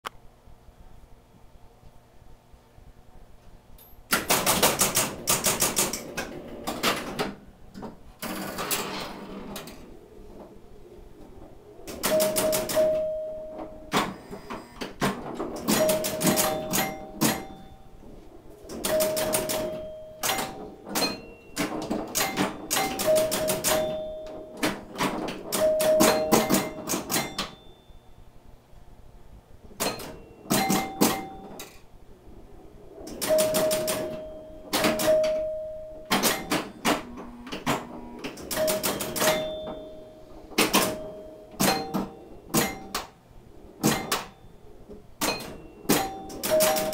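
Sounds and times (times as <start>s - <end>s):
pinball machine clacking: 3.8s - 28.0s, 29.7s - 46.9s
pinball chime bells ringing: 11.9s - 14.6s, 15.4s - 18.1s, 18.7s - 28.1s, 29.8s - 31.8s, 33.1s - 43.2s, 43.8s - 46.9s.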